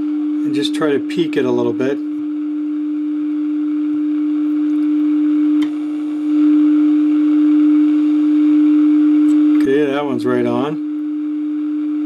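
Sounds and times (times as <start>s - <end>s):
low test tone from radio: 0.0s - 12.0s
click: 5.6s - 5.8s.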